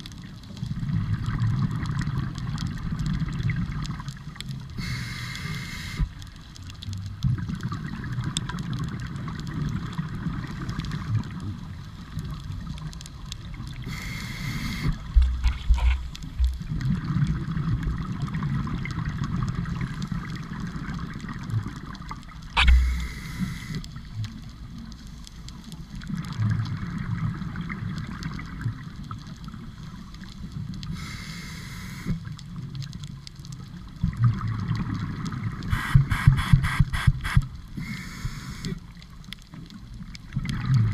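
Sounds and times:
exhaled bubbles gurgling: 0.0s - 25.0s, 25.9s - 31.5s, 32.1s - 40.9s
regulator inhalation hiss: 4.8s - 6.1s, 13.9s - 15.0s, 22.6s - 23.8s, 31.0s - 32.2s, 35.7s - 38.8s.

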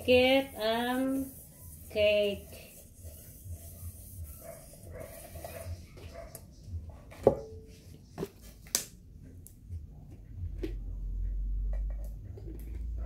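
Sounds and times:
metal pot knocking and clanking: 7.2s - 7.6s.

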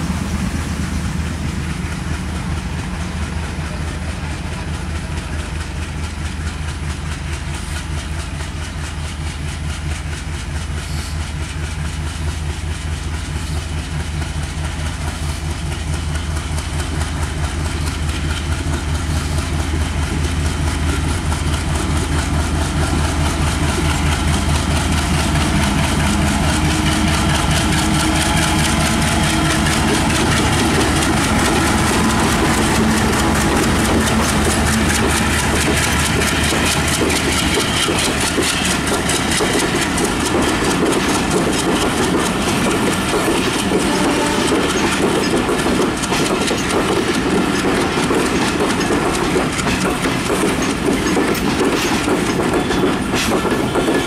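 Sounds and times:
diesel locomotive engine throbbing: 0.0s - 54.0s.

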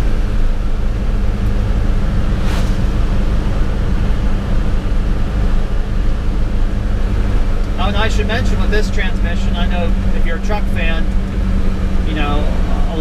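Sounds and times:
road and drivetrain drone: 0.0s - 13.0s
truck engine running under load: 0.0s - 13.0s.

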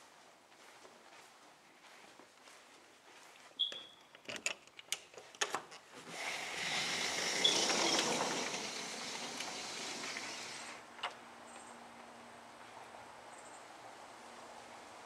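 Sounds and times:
door frame and latch clicks: 4.1s - 5.8s
sliding door squeak: 6.1s - 10.8s.

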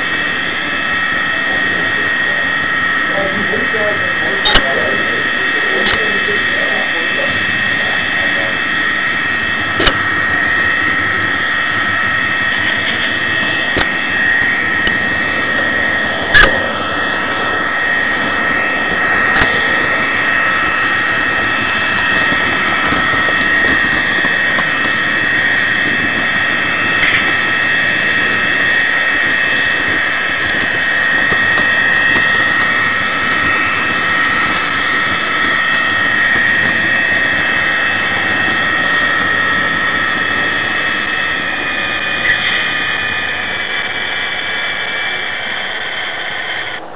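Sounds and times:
diesel engine sound from small speaker: 0.0s - 46.9s
steady whine: 0.0s - 46.9s
sharp click: 4.4s - 4.7s, 9.8s - 10.0s, 16.4s - 16.6s.

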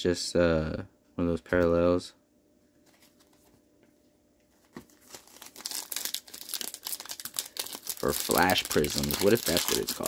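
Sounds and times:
plastic wrapper crinkling: 4.6s - 10.0s.

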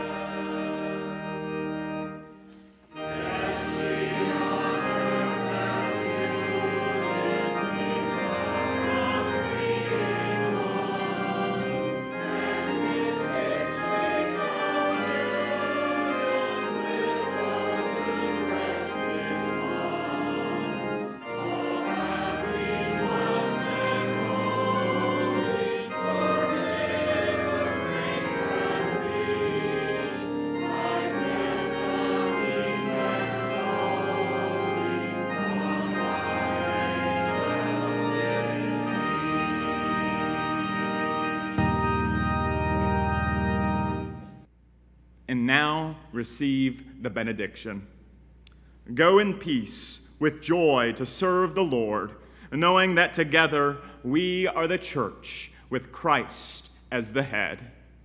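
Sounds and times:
voices singing a hymn: 0.0s - 44.4s
church organ: 0.0s - 58.0s.

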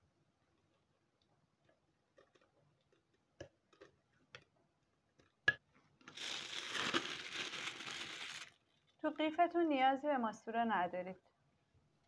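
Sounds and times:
plastic piping bag crinkling: 6.1s - 8.6s.

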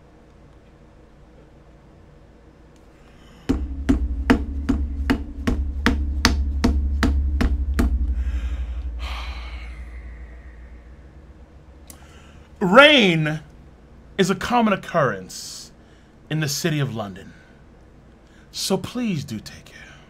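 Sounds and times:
low hum: 2.8s - 14.2s
sharp knocks: 3.4s - 11.0s.

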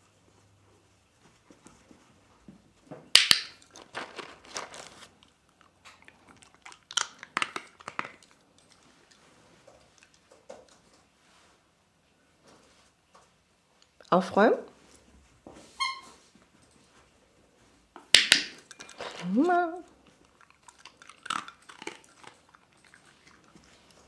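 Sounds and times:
dog crunching a dry treat: 3.3s - 10.8s, 18.6s - 24.0s.

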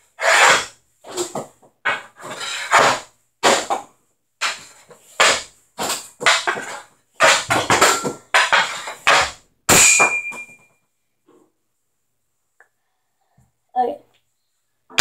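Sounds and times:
hockey stick hitting puck: 0.2s - 10.7s
pucks striking net: 0.2s - 10.7s
puck ringing off metal frame: 7.2s - 10.8s.

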